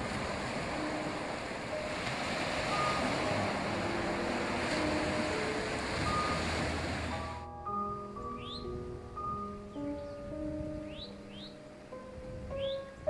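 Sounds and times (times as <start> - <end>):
waves breaking on beach: 0.0 - 7.5.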